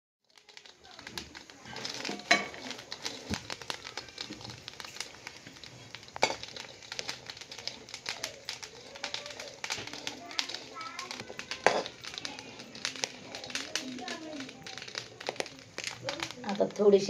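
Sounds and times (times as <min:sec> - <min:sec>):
chillies crackling in a pan: 0:00.2 - 0:17.0.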